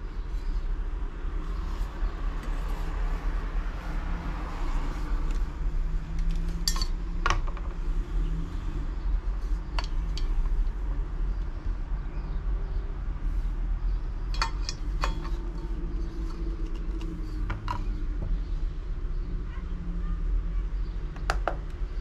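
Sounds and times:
steady low hum: 0.0s - 19.5s
hard objects clicking and clinking: 6.2s - 7.7s, 14.3s - 17.9s.

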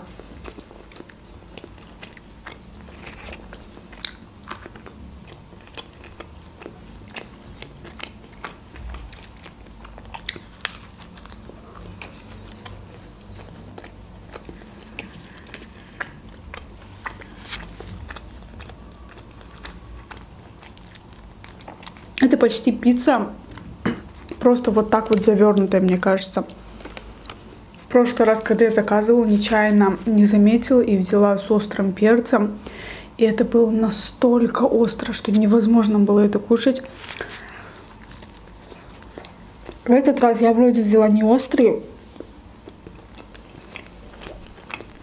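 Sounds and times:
person chewing food: 0.0s - 22.4s, 23.3s - 27.9s, 36.9s - 39.9s, 42.0s - 45.0s
crust crunching: 2.0s - 22.0s.

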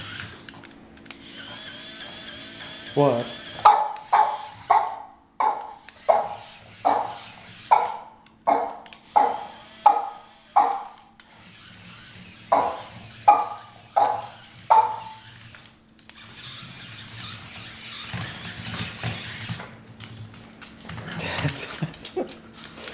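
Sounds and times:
dog barking sharply: 3.6s - 11.0s, 12.6s - 15.2s.

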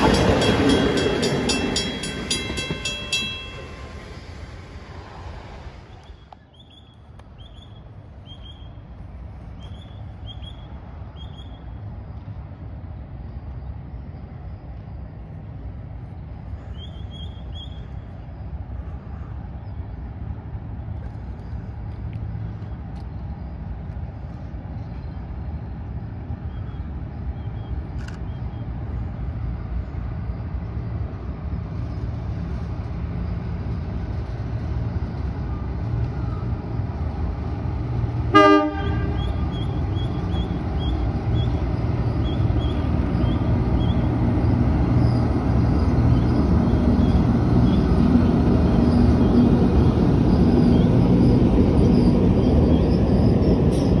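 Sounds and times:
train rumbling over a bridge: 0.0s - 54.0s
train horn toot: 38.3s - 39.7s.

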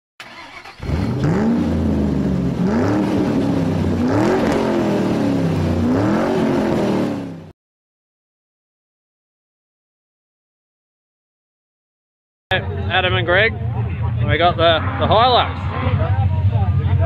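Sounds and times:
car engine revving: 0.2s - 7.5s, 12.9s - 17.0s.

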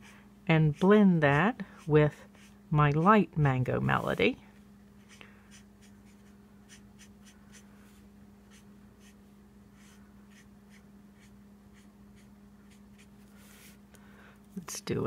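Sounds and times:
steady low hum: 0.0s - 15.0s
marker scratching on card: 5.0s - 7.6s, 8.5s - 13.7s.

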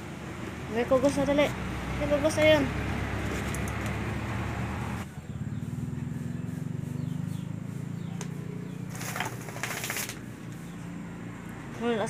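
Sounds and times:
plastic bag crinkling: 8.9s - 10.2s.

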